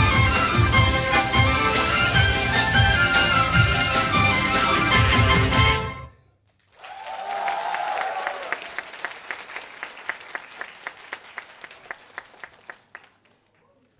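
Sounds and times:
electric violin with backing music: 0.0s - 6.1s
audience applause: 6.6s - 13.9s
rhythmic clapping in unison: 8.4s - 13.6s.

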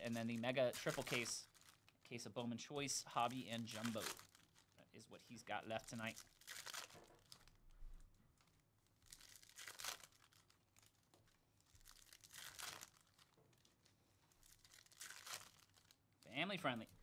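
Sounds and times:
foil wrapper tearing: 0.0s - 1.8s, 3.3s - 4.6s, 5.8s - 7.5s, 9.0s - 11.0s, 11.8s - 13.4s, 14.4s - 16.0s.

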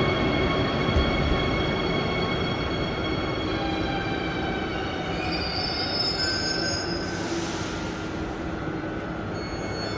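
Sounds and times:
train rumble: 0.0s - 9.9s
train wheels squealing: 4.7s - 8.3s, 9.2s - 9.9s.

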